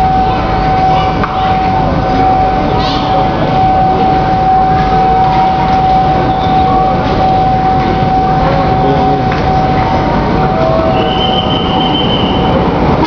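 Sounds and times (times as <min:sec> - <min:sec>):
train wheels rumbling on rails: 0:00.0 - 0:13.0
high-pitched wheel squeal: 0:10.5 - 0:12.7.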